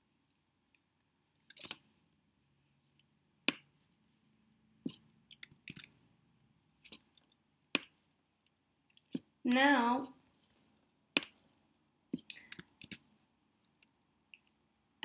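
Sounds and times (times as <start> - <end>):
computer mouse clicks: 5.4 - 6.0.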